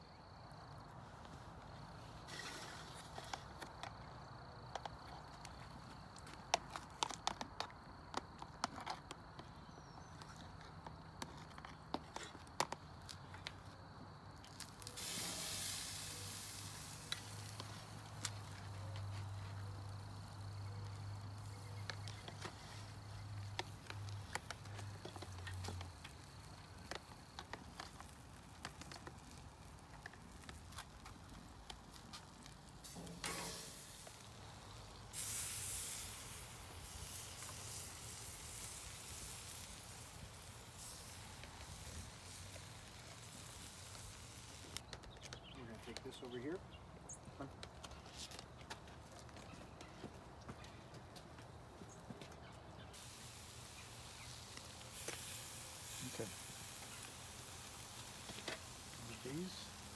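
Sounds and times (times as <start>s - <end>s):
chicken sizzling on a grill: 1.7s - 5.9s, 10.8s - 46.6s, 52.4s - 59.9s.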